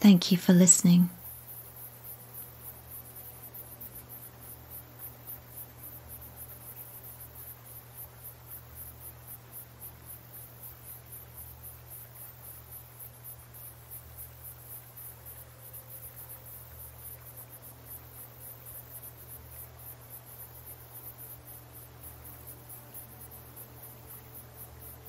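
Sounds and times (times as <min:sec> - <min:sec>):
low steady hum: 0:00.0 - 0:01.3
crickets chirping: 0:00.0 - 0:25.0.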